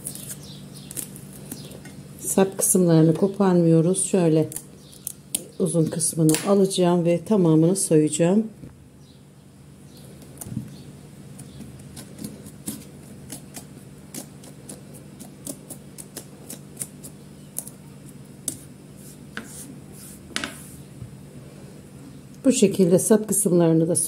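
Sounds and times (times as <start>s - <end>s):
knife scraping cuts: 11.4s - 17.8s, 18.5s - 20.8s.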